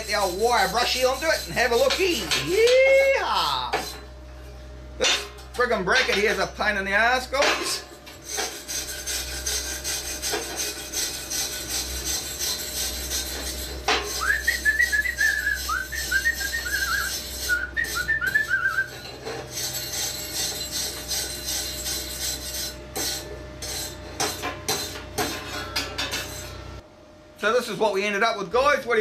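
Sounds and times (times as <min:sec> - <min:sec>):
wire brush scrubbing metal: 0:00.0 - 0:04.1, 0:05.0 - 0:26.8
whistled tune: 0:14.2 - 0:18.9.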